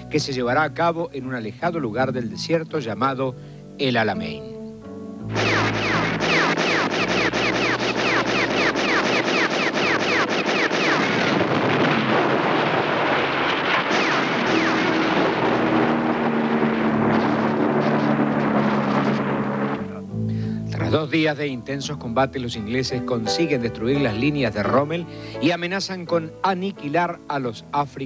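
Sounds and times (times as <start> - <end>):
rapid gunfire: 5.3 - 19.7
explosions: 5.3 - 20.0
low sustained music notes: 14.2 - 28.0.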